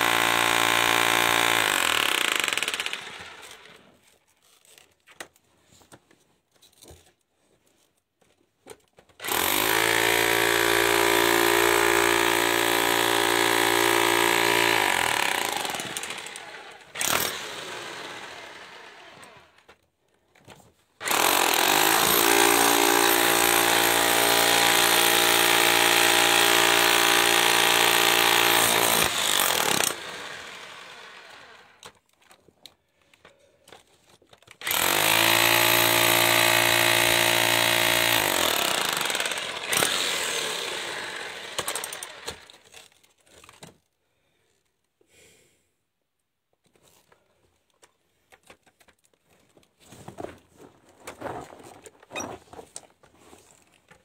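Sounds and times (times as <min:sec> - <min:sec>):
jackhammer breaking rock: 0:00.0 - 0:03.8, 0:09.2 - 0:19.6, 0:21.0 - 0:31.6, 0:34.6 - 0:42.8.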